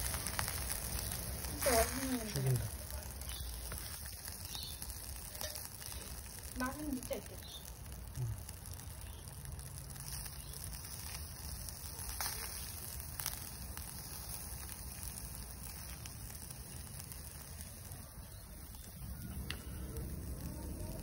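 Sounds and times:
skewers sizzling on a grill: 0.0s - 21.0s.

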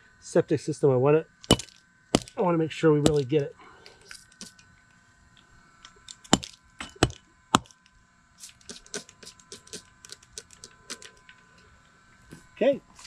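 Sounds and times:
hatchet chopping into wood: 1.5s - 2.4s, 3.0s - 3.3s, 6.3s - 7.8s.

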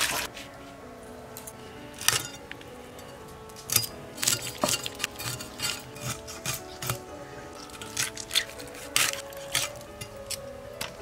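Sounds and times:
faint background music: 0.0s - 11.0s
rasping scraping strokes: 3.7s - 10.1s.

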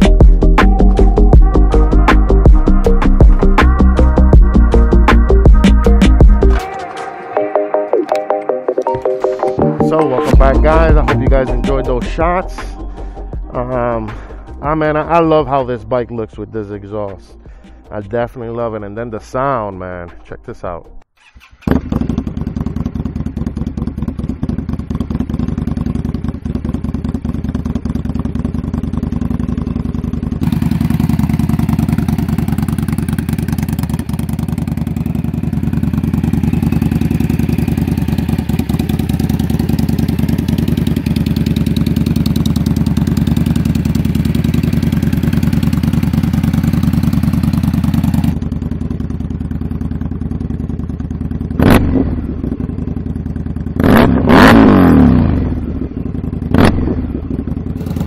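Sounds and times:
motorcycle engine idling: 0.0s - 6.6s, 10.4s - 15.5s, 21.3s - 58.0s
engine revving blip: 51.6s - 52.3s, 53.8s - 55.6s, 56.5s - 57.2s.

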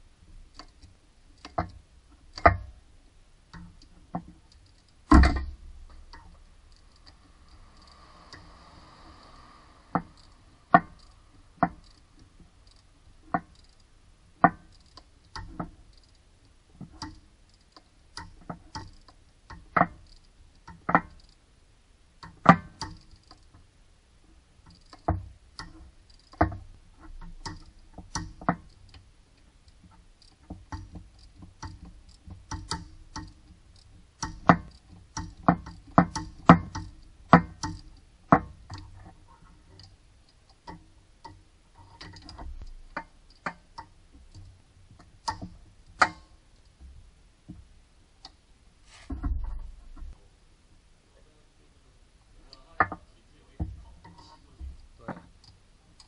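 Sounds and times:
ratchet wrench clicking: 4.5s - 13.9s, 14.6s - 16.2s, 17.0s - 19.1s, 20.0s - 21.4s, 22.8s - 23.5s, 24.7s - 26.4s.

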